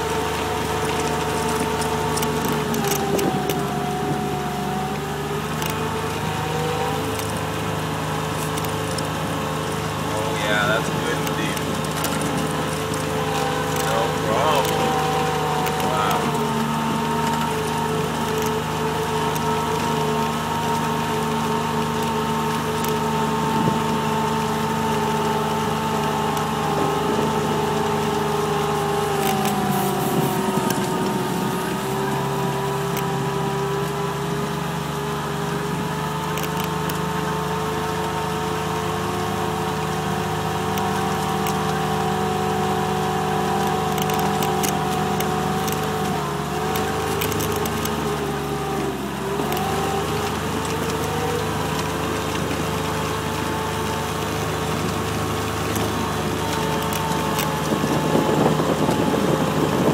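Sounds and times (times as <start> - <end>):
diesel utility vehicle whining: 0.0 - 59.9
light clicks and clatters: 0.1 - 4.6, 5.3 - 6.4, 8.2 - 34.0, 36.1 - 37.3, 38.8 - 59.9.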